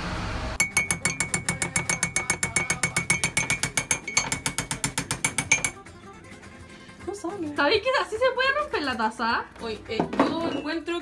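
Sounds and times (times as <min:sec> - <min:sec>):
metal spoon stirring in ceramic mug: 0:00.6 - 0:05.8.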